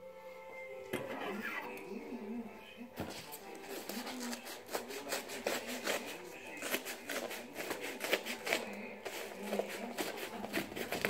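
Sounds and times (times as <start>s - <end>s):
paper crinkling: 3.0s - 11.0s
scissors snipping: 3.7s - 11.0s.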